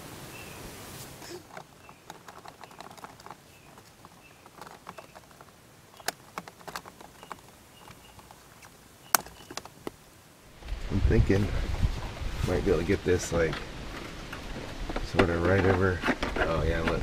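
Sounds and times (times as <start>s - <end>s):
sharp clicks: 1.5s - 10.0s.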